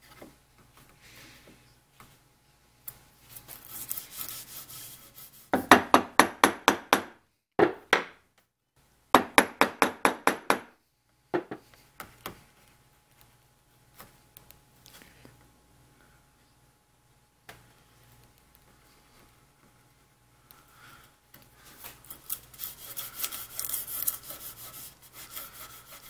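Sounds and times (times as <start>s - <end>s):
chisel scraping wood: 22.1s - 26.0s.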